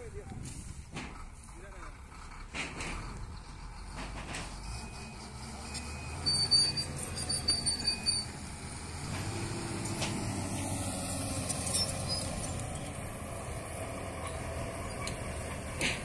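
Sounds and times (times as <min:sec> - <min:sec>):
bulldozer diesel engine rumble: 0:00.0 - 0:16.0
short high-pitched squeals: 0:04.6 - 0:08.4, 0:11.6 - 0:12.6.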